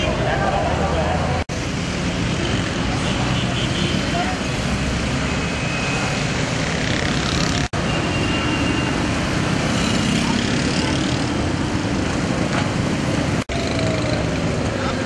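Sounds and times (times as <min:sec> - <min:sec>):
traffic on wet road: 0:00.0 - 0:15.0.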